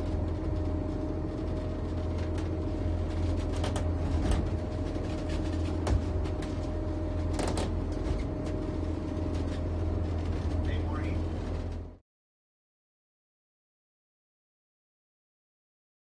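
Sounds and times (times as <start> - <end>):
boat engines droning: 0.0 - 12.0.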